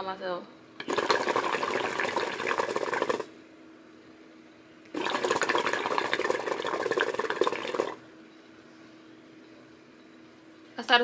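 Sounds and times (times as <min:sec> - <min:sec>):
hookah water bubbling: 0:00.8 - 0:03.4, 0:04.9 - 0:08.0.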